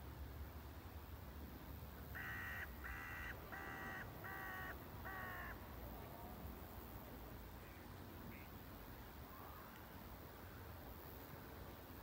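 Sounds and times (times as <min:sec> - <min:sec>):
bird calling: 0:02.2 - 0:05.6.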